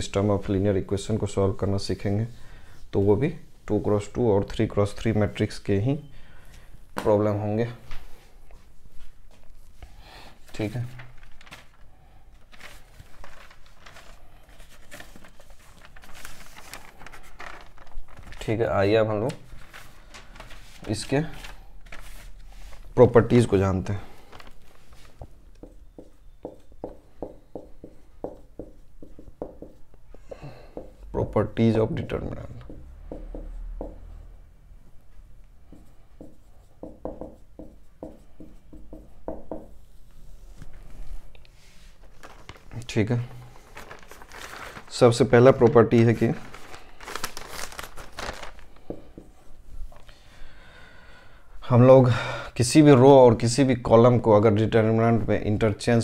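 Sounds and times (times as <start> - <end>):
rustling and scraping handling: 7.9 - 18.6, 19.2 - 23.1, 24.2 - 30.3, 39.7 - 50.1
marker scratching on a whiteboard: 25.6 - 30.0, 35.6 - 39.8.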